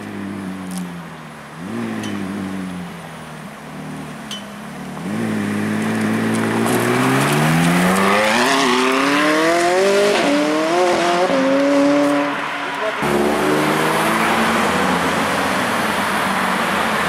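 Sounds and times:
sports car engine revving: 0.0 - 16.9.

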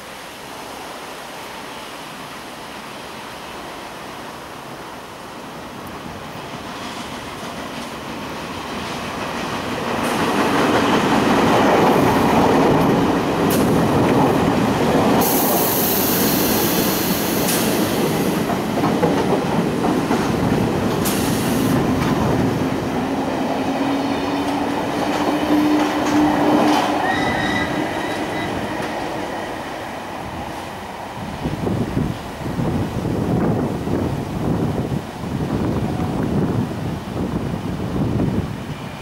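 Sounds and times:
train wheels rumbling on rail: 1.6 - 39.0
wheels squealing: 26.2 - 28.8.

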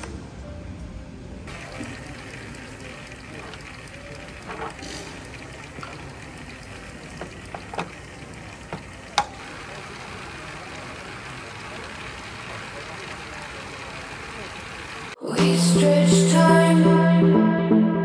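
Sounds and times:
bike clicks and knocks: 1.5 - 9.8.

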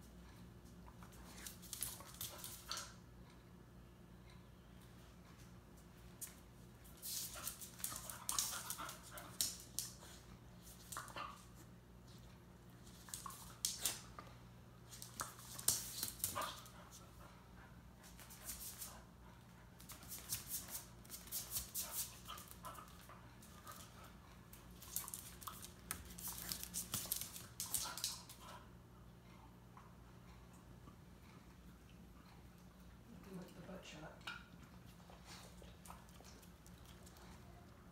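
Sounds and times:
dog claws clicking on wood floor: 24.5 - 28.5.

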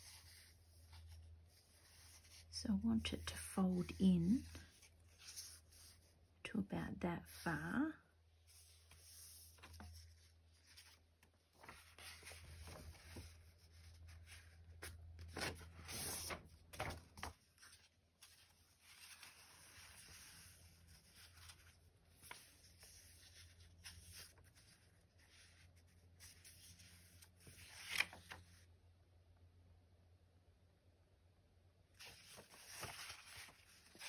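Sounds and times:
page turning: 8.5 - 25.1, 25.8 - 28.6, 32.0 - 34.0
paper rustling and sliding: 8.5 - 28.7, 32.0 - 34.0.

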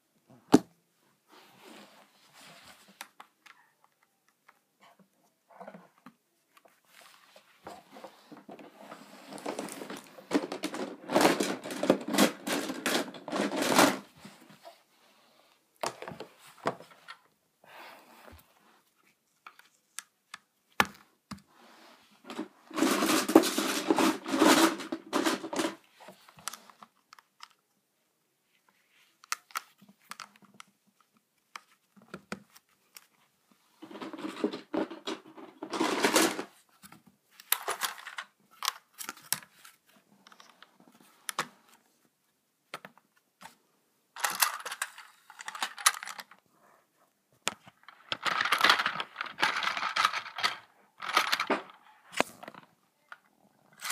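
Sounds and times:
plastic track rattling and scraping: 7.7 - 14.2, 22.3 - 26.7, 33.8 - 36.6, 37.4 - 39.5, 44.2 - 46.4, 47.7 - 52.6
plastic toy track clicking: 33.8 - 36.5, 44.2 - 46.4, 48.0 - 52.3.

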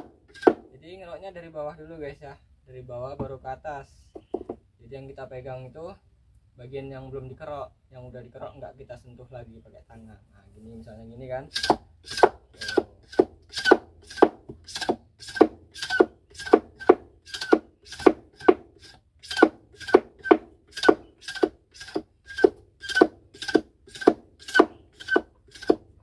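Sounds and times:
blade scraping sugarcane rind: 11.5 - 25.8.

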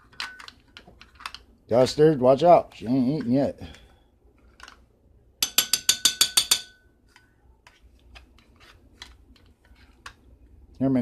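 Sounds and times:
metal utensil tapping a dish: 5.4 - 6.8.

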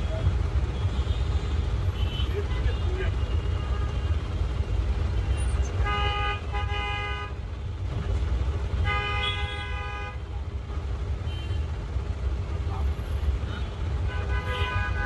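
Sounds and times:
low traffic rumble: 0.0 - 15.0
vehicle horn honking: 8.8 - 10.2, 13.5 - 15.0.

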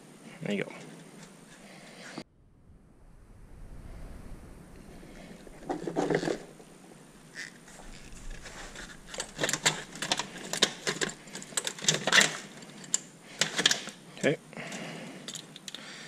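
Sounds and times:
rustle of hands handling wires: 5.2 - 15.8
metallic clicks and rattles: 7.8 - 14.0, 14.7 - 15.8.

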